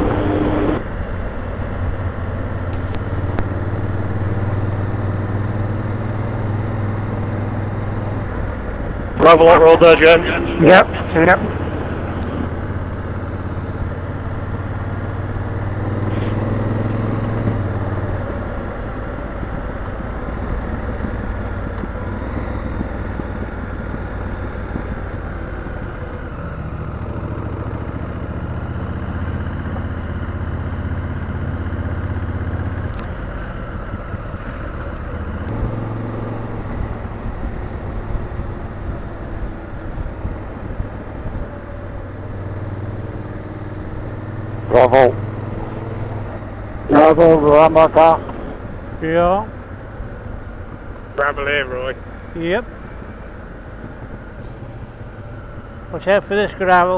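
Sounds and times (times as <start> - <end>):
wind noise: 0.0 - 6.5
motorcycle engine running: 0.0 - 56.9.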